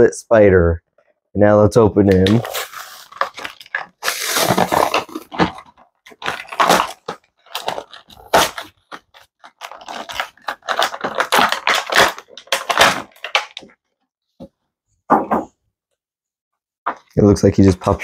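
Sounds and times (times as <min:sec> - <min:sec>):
plastic packaging crinkling: 0:02.1 - 0:13.7.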